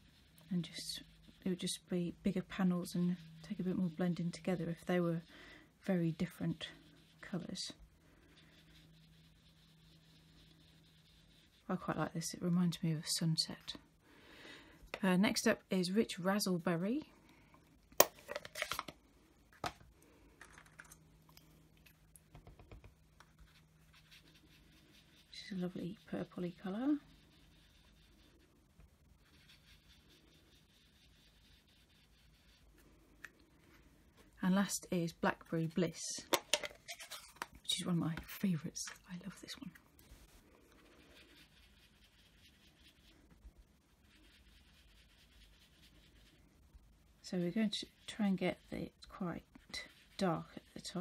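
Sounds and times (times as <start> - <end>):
sponge rubbing on card: 0.0 - 13.2, 22.4 - 35.8, 36.9 - 46.6, 47.2 - 51.0.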